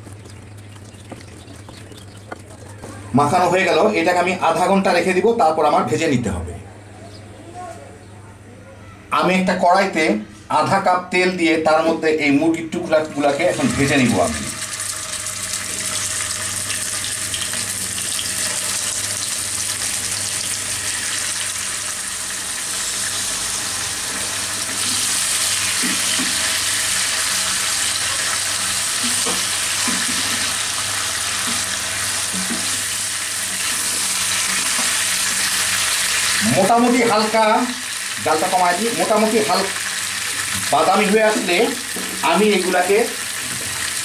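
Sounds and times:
chicken sizzling in hot oil: 13.0 - 44.0.

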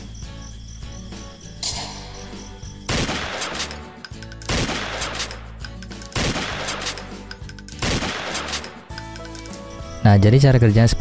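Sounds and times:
gas pistol shot crack: 2.9 - 3.8, 4.5 - 5.3, 6.2 - 7.0, 7.8 - 8.7.

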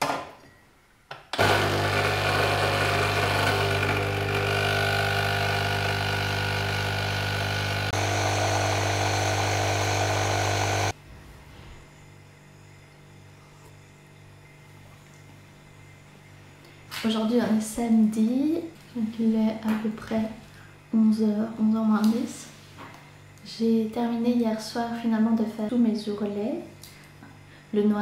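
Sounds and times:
coffee machine pump humming: 1.4 - 11.0.

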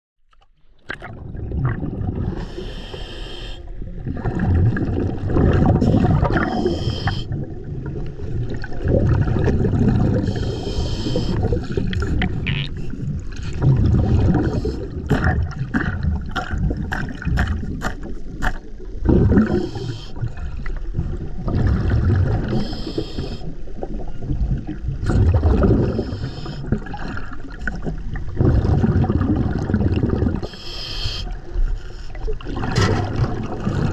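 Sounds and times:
exhaust bubbling underwater: 0.8 - 2.8, 3.7 - 30.6, 32.2 - 33.9
regulator inhale hiss: 2.4 - 3.7, 6.6 - 7.4, 10.2 - 11.8, 19.6 - 20.2, 22.5 - 23.6, 25.9 - 26.7, 30.5 - 32.2.

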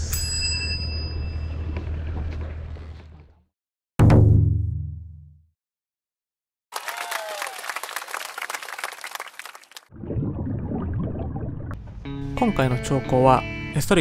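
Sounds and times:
dense clapping: 6.7 - 9.9.

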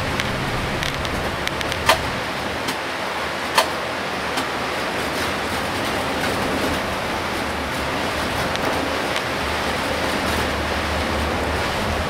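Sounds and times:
rain and tyres on wet road: 0.0 - 12.0.

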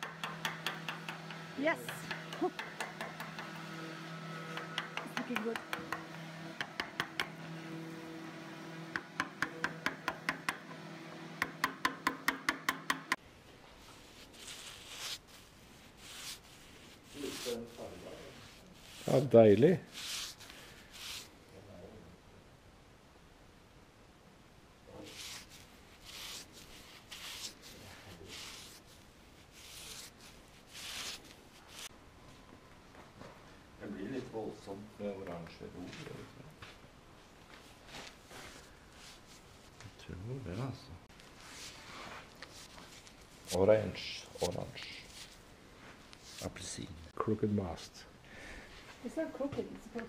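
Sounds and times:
hammer tapping chisel: 0.0 - 7.8, 8.8 - 13.2
steady low hum: 0.1 - 13.2
paintbrush swishing on wood: 13.8 - 21.3, 25.0 - 31.9.

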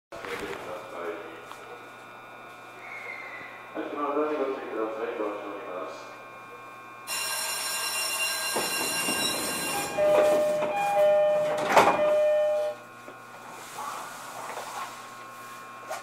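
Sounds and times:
electronic signal ringing: 7.1 - 12.8
two-tone door chime: 7.1 - 12.8
train doors shutting thud: 8.5 - 12.7.

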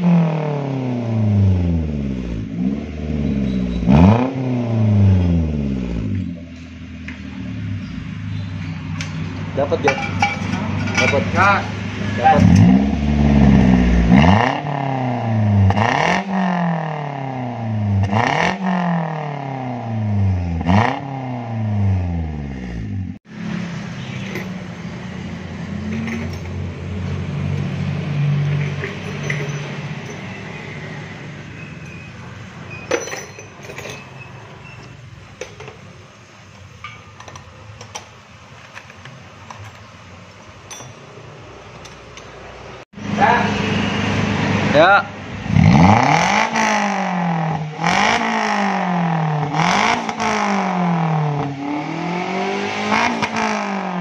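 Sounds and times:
car engine revving: 0.0 - 32.5, 41.2 - 54.0.

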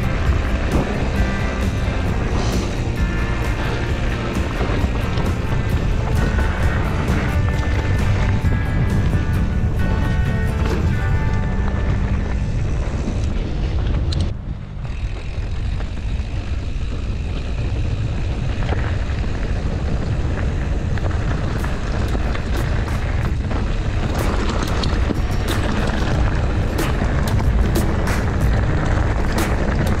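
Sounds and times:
bike rattles and knocks: 0.0 - 30.0
bike tyre rumble on dirt: 0.0 - 30.0
wind on microphone: 0.0 - 30.0.

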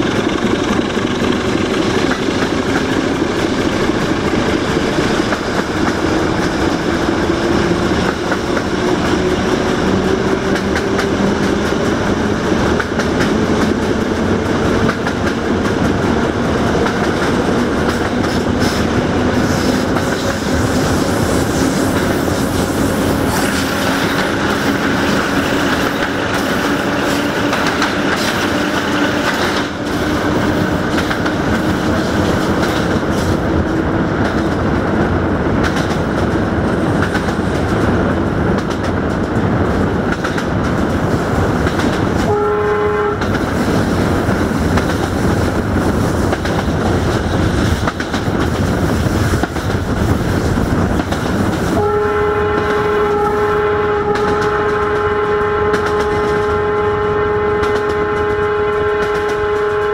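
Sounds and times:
wheels clattering over rails: 0.0 - 42.3
locomotive engine running loud: 0.0 - 59.9
locomotive horn: 42.2 - 43.4, 51.8 - 59.9.

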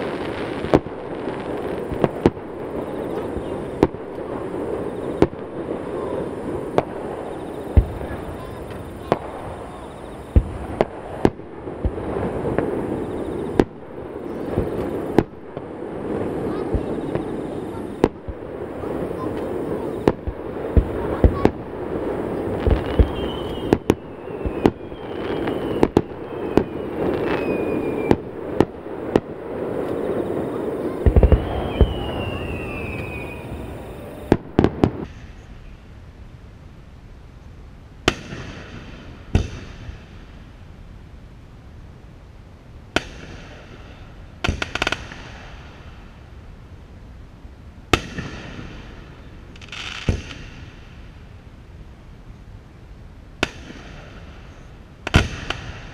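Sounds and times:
firework shells booming: 0.0 - 35.5, 38.0 - 40.3, 42.9 - 46.1, 47.9 - 51.2, 53.4 - 55.9
falling firework whistles: 0.0 - 35.9.

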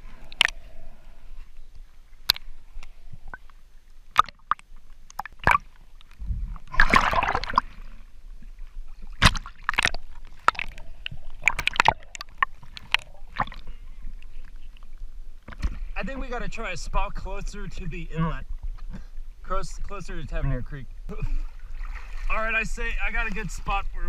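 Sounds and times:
water sloshing and splashing: 0.0 - 16.0, 21.2 - 24.0.

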